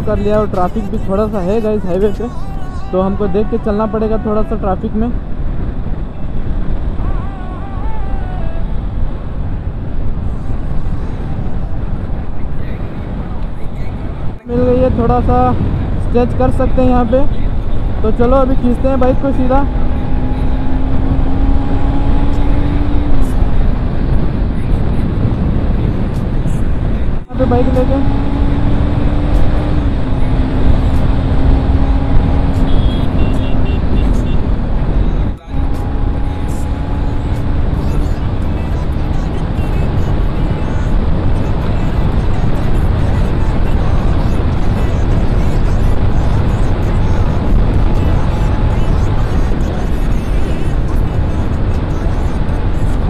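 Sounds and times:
wind blasting microphone: 0.0 - 53.0
motorcycle engine: 14.5 - 23.6, 27.2 - 40.8.

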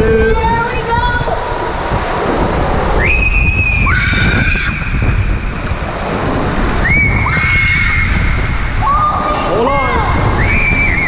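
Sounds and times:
wind noise on microphone: 0.0 - 11.0
water rushing down slide: 0.3 - 11.0
child screaming: 3.0 - 4.9, 6.8 - 8.2, 8.8 - 11.0.

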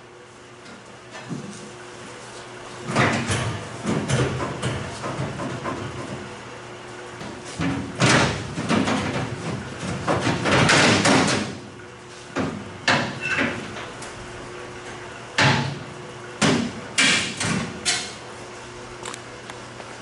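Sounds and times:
sharp knocks on sheet steel: 10.1 - 11.6, 15.4 - 15.8, 16.4 - 18.1.

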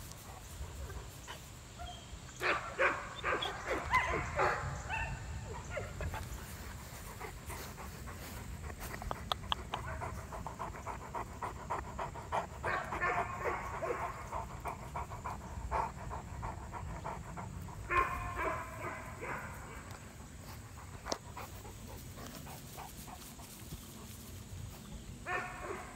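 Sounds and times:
dog panting rapidly: 6.0 - 19.0, 20.3 - 24.3.

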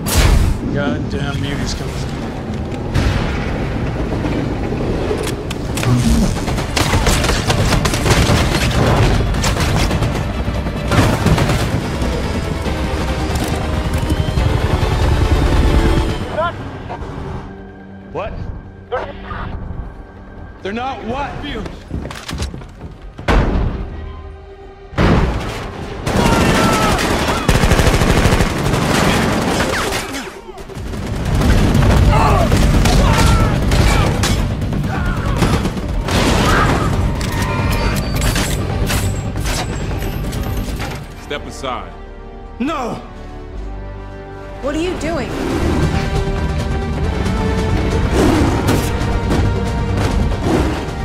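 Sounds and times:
dramatic background music: 0.0 - 51.0
gunfire bursts: 26.0 - 33.0
automatic rifles firing: 26.0 - 37.2.

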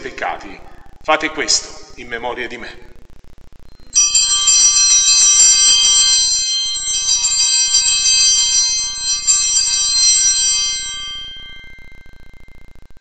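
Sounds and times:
altar bells jangling: 4.0 - 12.0.

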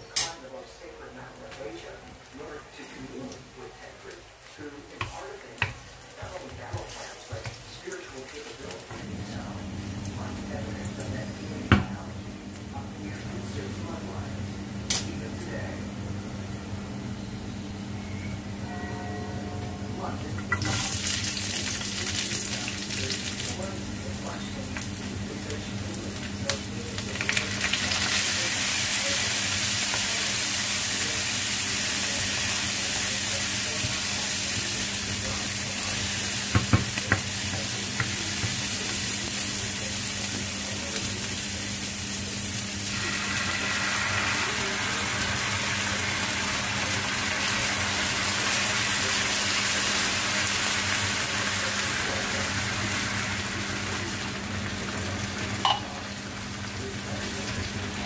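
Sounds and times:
wooden spoon knocking on pan: 5.0 - 5.9, 6.6 - 7.6, 36.5 - 38.6
vegetables sizzling in hot oil: 20.5 - 58.0
water pouring into pan: 42.9 - 54.0.

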